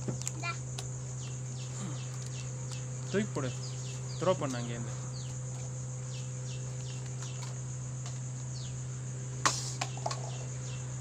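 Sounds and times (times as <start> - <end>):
cricket trill: 0.0 - 11.0
low steady hum: 0.0 - 11.0
bird chirping: 1.1 - 7.6, 8.5 - 8.8.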